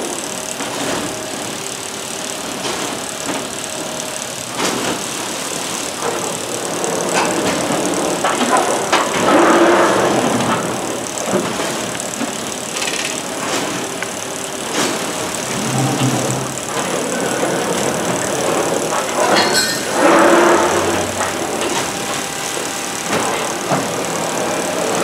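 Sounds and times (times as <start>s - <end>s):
machine running: 0.0s - 25.0s
rush of machine noise: 0.0s - 25.0s
sharp machine click: 12.1s - 14.2s.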